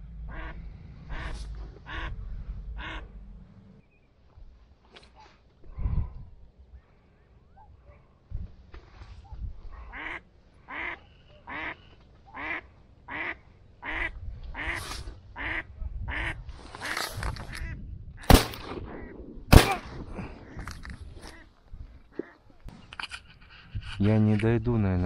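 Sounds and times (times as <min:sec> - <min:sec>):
duck quacking: 0:00.3 - 0:02.2, 0:02.8 - 0:03.1, 0:09.9 - 0:14.8, 0:15.4 - 0:17.0
shotgun shots: 0:18.2 - 0:20.5.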